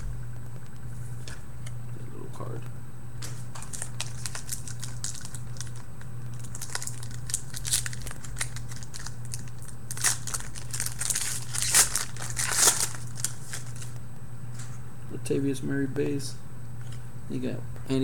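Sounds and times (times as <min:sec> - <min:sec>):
wrapper tearing and crinkling: 0:03.3 - 0:14.0.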